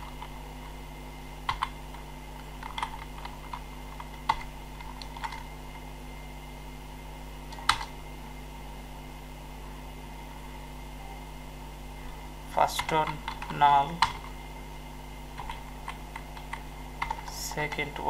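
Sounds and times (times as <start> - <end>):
steady low hum: 0.0 - 18.0
keyboard typing: 1.5 - 5.5, 7.5 - 7.9, 12.8 - 14.4, 15.4 - 17.9.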